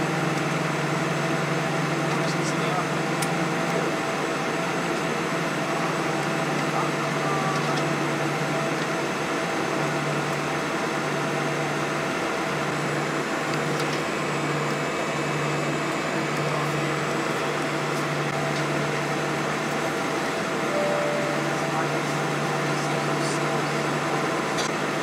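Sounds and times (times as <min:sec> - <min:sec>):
jet engines idling: 0:00.0 - 0:25.0
cabin air-conditioning rush: 0:10.6 - 0:25.0
low drone: 0:20.7 - 0:24.2.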